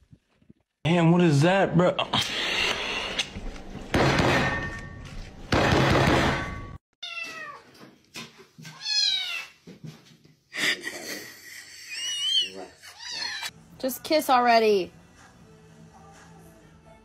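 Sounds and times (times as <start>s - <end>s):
cat meowing: 7.0s - 7.7s, 8.7s - 9.6s.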